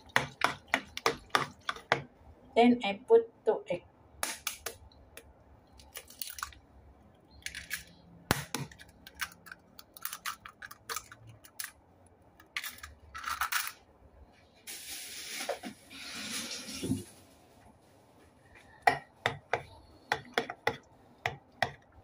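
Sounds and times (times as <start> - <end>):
eggshells cracking: 5.7 - 6.6, 7.4 - 11.8.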